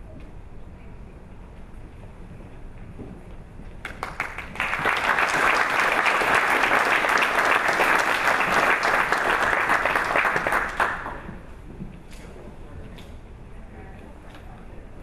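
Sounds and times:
audience applauding: 3.8s - 11.3s.

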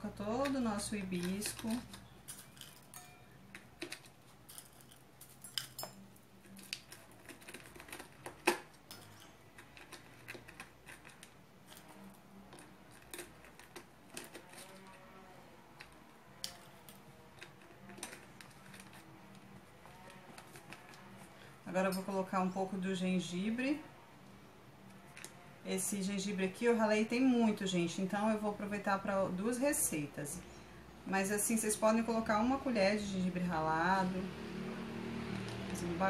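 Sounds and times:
dried flowers crackling: 0.0s - 23.9s.

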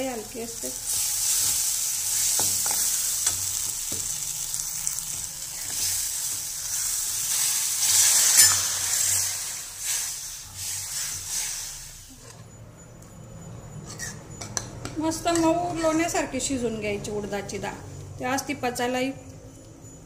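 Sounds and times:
food sizzling in oil: 0.0s - 12.2s.

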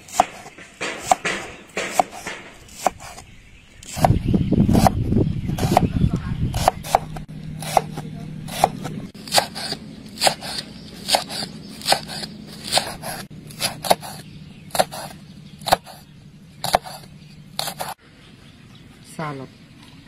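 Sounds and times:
knife chopping on wooden board: 0.0s - 3.2s, 3.8s - 5.0s, 5.6s - 5.9s, 6.5s - 16.0s, 16.6s - 18.0s.

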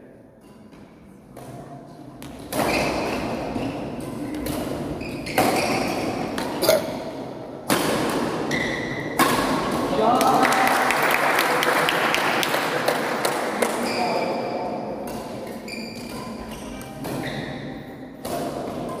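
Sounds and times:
racket hitting shuttlecock: 7.6s - 10.0s, 15.0s - 19.0s.

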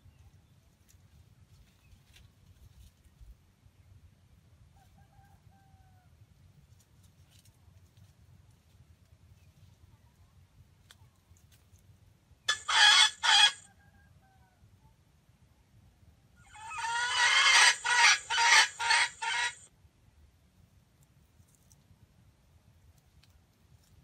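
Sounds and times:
rooster crowing: 12.5s - 14.5s, 16.5s - 19.6s.

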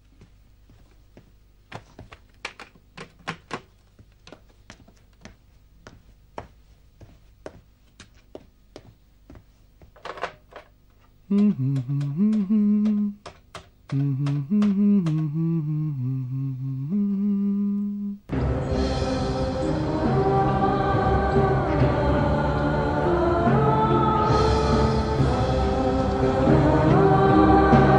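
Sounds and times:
light footsteps: 0.0s - 10.0s
man humming a tune: 11.3s - 18.3s
music: 18.3s - 27.9s.

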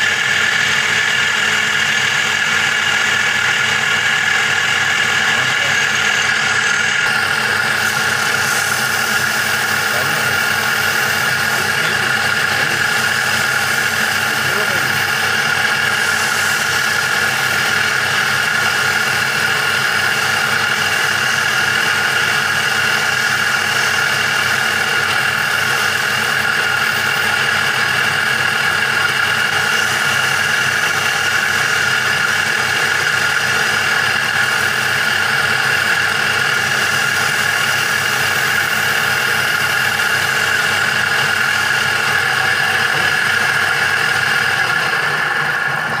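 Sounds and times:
wood lathe whining: 0.0s - 46.0s.

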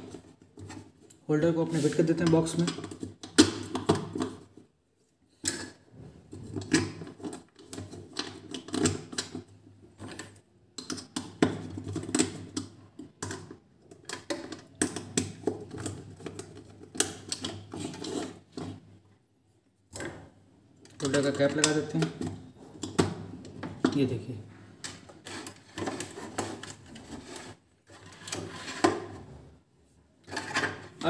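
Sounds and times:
plastic clicks taps and scrapes: 6.4s - 18.8s.

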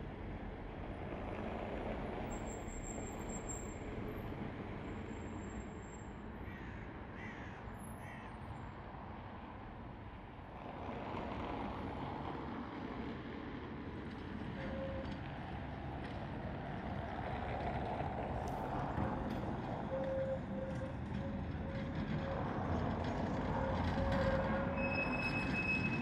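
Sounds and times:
distant city traffic hum: 0.0s - 26.0s
crow cawing: 6.5s - 8.3s
tram approaching: 10.6s - 26.0s.

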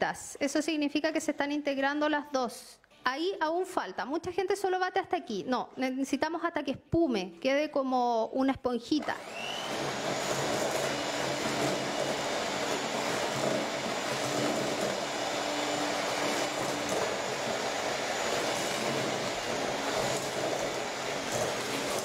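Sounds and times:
electric hand mixer running: 9.0s - 22.0s.

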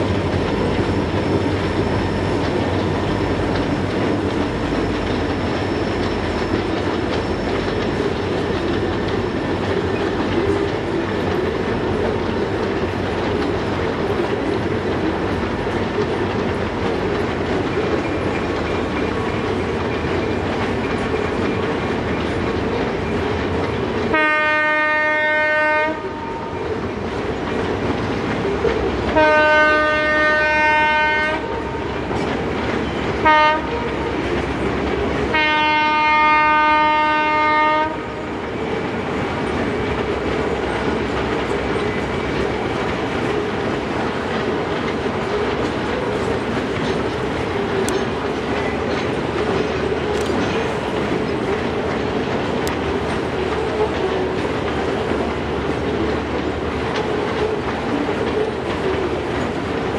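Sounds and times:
train wheels clickety-clack: 0.0s - 59.9s
train horn blasts: 24.1s - 26.6s, 29.1s - 31.8s, 33.2s - 34.3s, 35.2s - 38.2s.

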